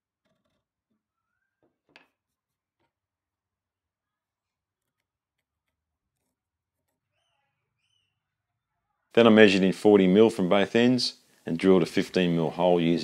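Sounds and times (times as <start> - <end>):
pencil scratching wood: 4.4 - 7.5.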